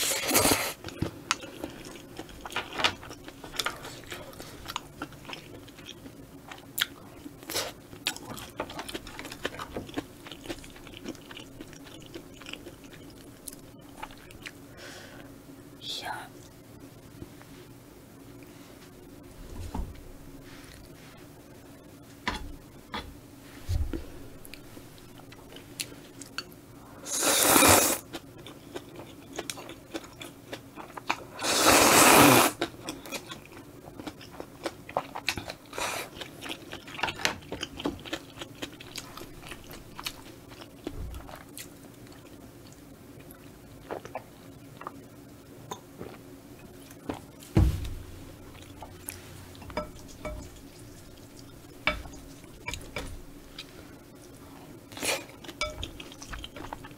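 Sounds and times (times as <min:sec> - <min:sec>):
wet chewing: 0:00.0 - 0:14.6, 0:32.2 - 0:45.0, 0:48.3 - 0:56.9
slurping noodles: 0:27.1 - 0:28.0, 0:31.4 - 0:32.6.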